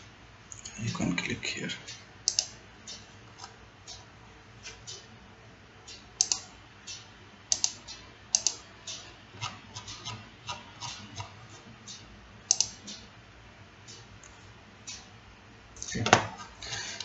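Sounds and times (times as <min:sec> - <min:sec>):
computer mouse clicking: 0:01.9 - 0:04.0, 0:05.9 - 0:13.1.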